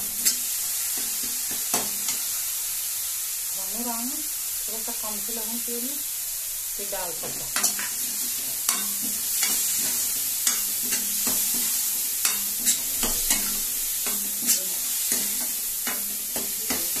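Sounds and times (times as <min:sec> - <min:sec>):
spices sizzling in oil: 0:00.0 - 0:17.0
spoon scraping and knocking pan: 0:07.2 - 0:17.0.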